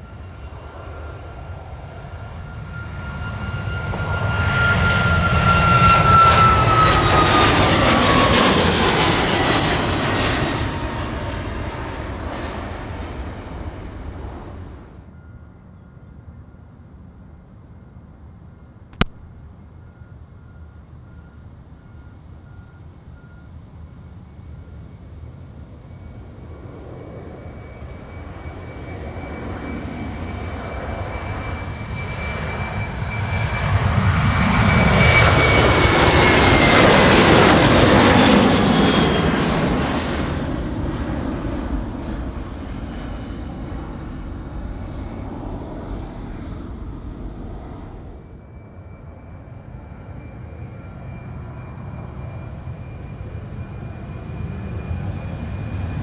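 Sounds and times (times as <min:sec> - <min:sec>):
jet engines at takeoff: 0:00.0 - 0:56.0
high engine whine: 0:19.0 - 0:41.1, 0:42.9 - 0:56.0.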